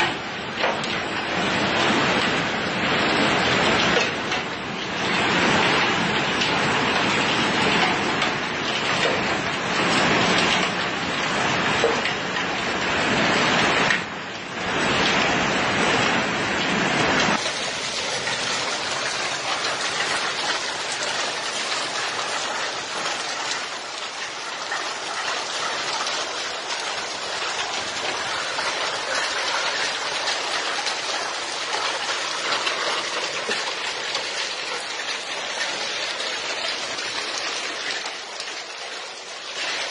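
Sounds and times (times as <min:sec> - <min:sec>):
heavy hail hissing: 0:16.7 - 0:39.9.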